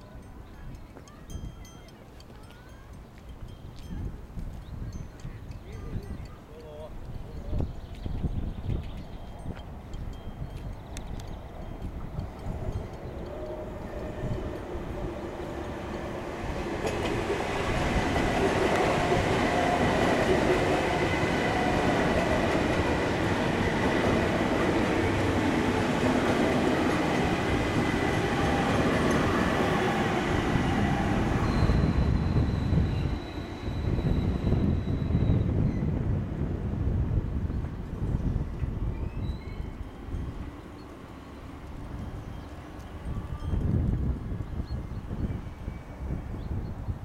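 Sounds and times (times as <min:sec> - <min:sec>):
electric train passing: 0:09.0 - 0:47.0
high squeal: 0:29.9 - 0:36.0.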